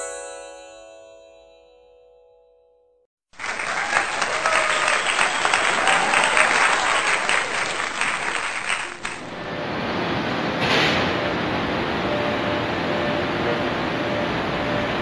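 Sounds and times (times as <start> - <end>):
crowd applause: 3.3 - 9.3.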